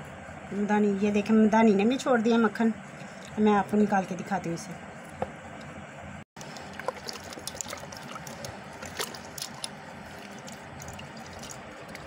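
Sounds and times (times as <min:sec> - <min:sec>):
hand squelching butter: 0:06.4 - 0:12.0.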